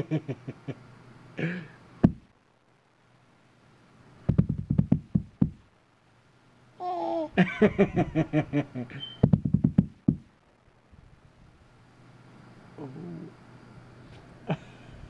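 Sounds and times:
rapid knocking: 4.3 - 5.6, 9.2 - 10.3.

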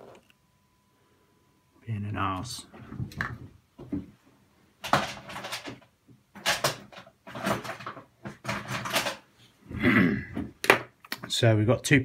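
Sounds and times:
tools clattering on workbench: 4.8 - 9.2.

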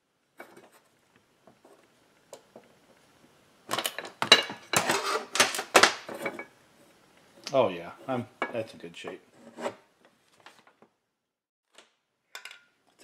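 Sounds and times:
metal tools clattering on workbench: 12.4 - 13.0.

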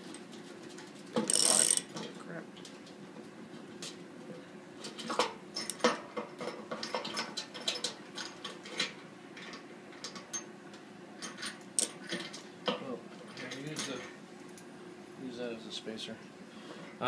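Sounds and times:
socket ratchet clicking: 1.3 - 1.9.

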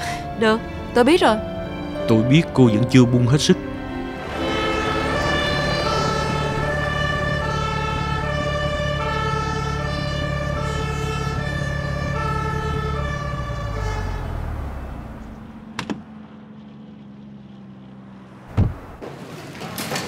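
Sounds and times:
two-tone siren wailing: 0.3 - 15.7
steady low rumble: 3.0 - 10.6.

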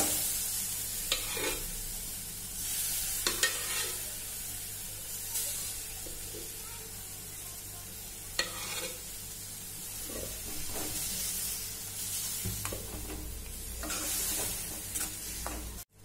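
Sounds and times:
food sizzling in a pan: 0.0 - 16.0
ladle clinking and scraping pan: 1.1 - 1.6, 3.2 - 4.0, 8.4 - 9.0, 12.6 - 15.8.

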